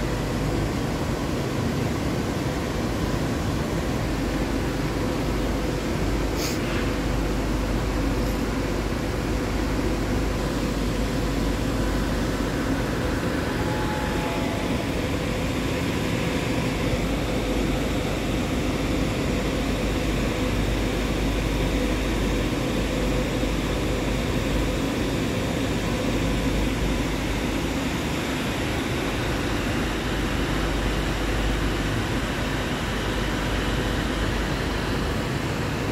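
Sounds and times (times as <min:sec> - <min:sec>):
faint constant hum: 0:00.0 - 0:35.9
industrial machinery rushing noise: 0:10.3 - 0:19.3.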